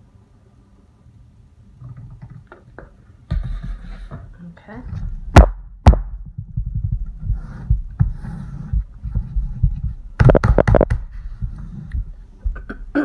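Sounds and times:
low rumbling handling noise: 0:01.7 - 0:12.8
sharp knocks: 0:09.6 - 0:11.1.

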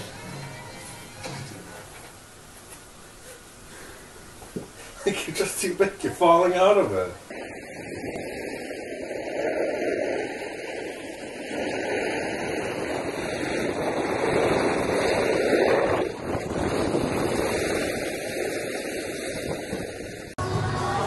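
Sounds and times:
wind on microphone: 0:07.0 - 0:20.4
sliding over packed snow: 0:07.4 - 0:20.0.

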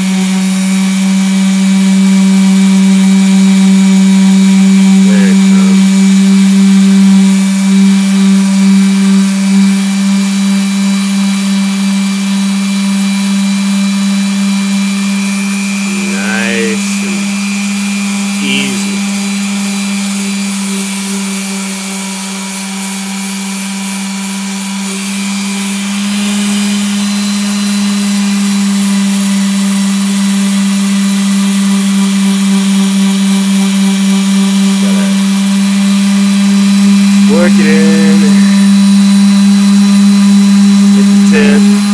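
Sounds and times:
electric sander humming: 0:00.0 - 0:19.1, 0:31.4 - 0:41.9.

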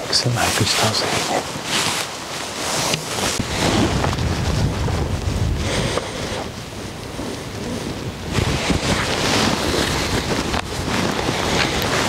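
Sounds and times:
wind buffeting microphone: 0:03.1 - 0:12.0.

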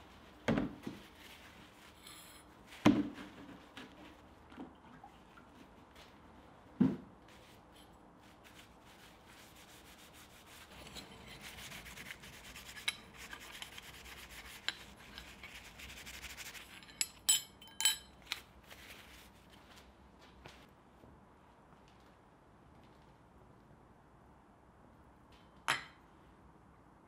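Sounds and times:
cloth rag scrubbing metal: 0:07.3 - 0:17.2.

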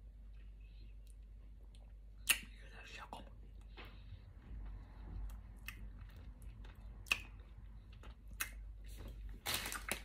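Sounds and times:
wet lip smacks and mouth clicks: 0:01.0 - 0:02.7, 0:05.2 - 0:08.8.

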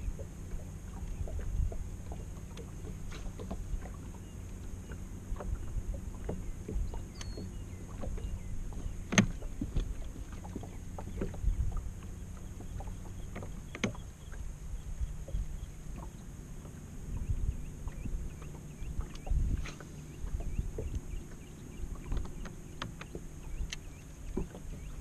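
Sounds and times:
water lapping against boat hull: 0:00.0 - 0:25.0
light clicks: 0:07.1 - 0:07.5, 0:22.0 - 0:24.7.

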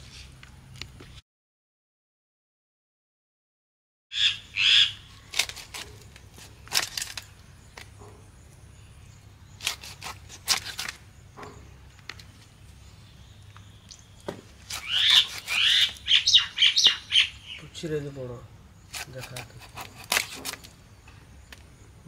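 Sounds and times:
birds chirping: 0:04.1 - 0:22.0
blade cutting fish scales: 0:09.6 - 0:11.0, 0:14.6 - 0:16.0, 0:18.9 - 0:20.7.

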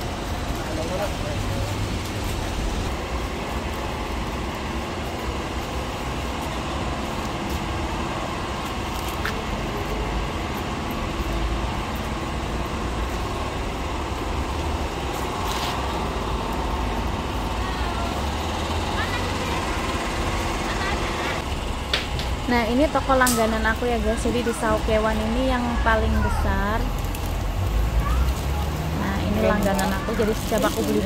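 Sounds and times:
street traffic rumble: 0:00.0 - 0:31.0.

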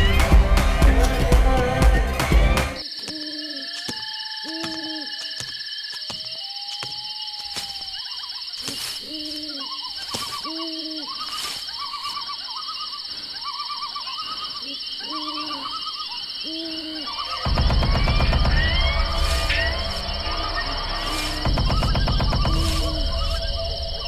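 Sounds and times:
loud music: 0:00.0 - 0:02.8
night insects chirring: 0:00.0 - 0:24.0
owl hooting: 0:03.0 - 0:05.3, 0:06.4 - 0:24.0.

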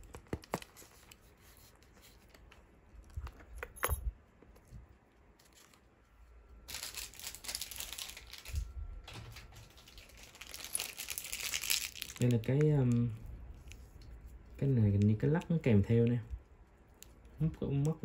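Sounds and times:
packaging rustling: 0:00.0 - 0:03.6, 0:06.6 - 0:14.0.

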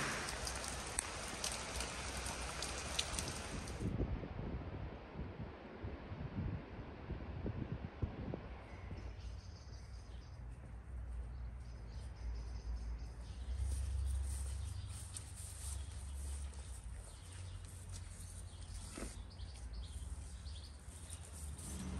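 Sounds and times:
wind buffeting microphone: 0:00.0 - 0:09.2.

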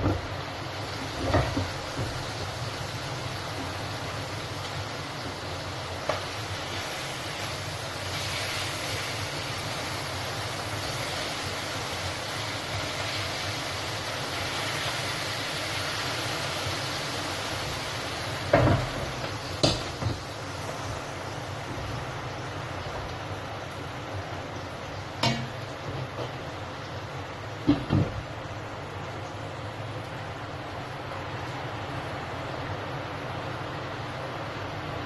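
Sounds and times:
food sizzling in a pan: 0:00.0 - 0:30.2
utensil knocking against pan: 0:25.2 - 0:26.4.

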